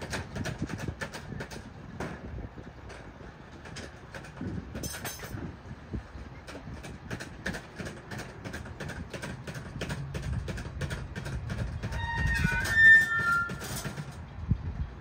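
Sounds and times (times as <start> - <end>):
truck rumbling on rails: 0.0 - 15.0
crossing warning bell: 11.8 - 14.2.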